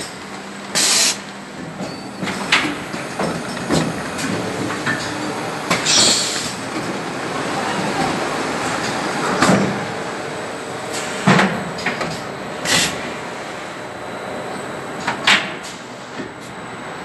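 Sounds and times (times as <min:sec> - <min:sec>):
packing machine clatter: 0:00.0 - 0:10.1
compressed air hiss: 0:00.8 - 0:01.2.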